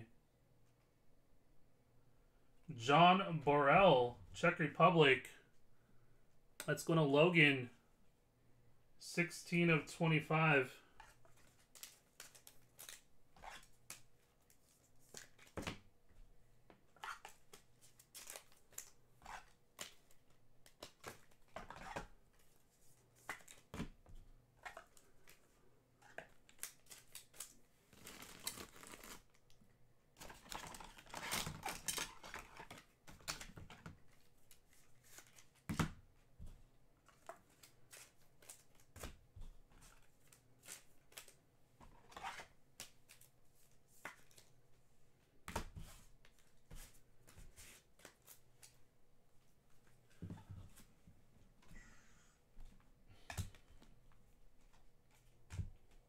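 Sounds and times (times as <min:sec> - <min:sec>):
wrapper rustling and tearing: 0:26.4 - 0:29.4.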